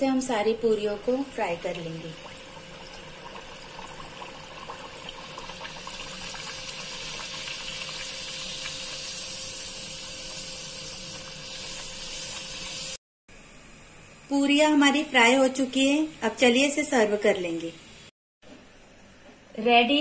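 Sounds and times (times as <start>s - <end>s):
deep-frying in hot oil: 0.0s - 13.0s.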